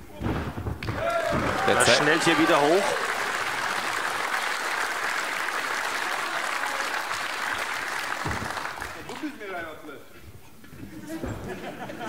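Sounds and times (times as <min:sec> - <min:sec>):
audience applauding: 0:00.9 - 0:09.4.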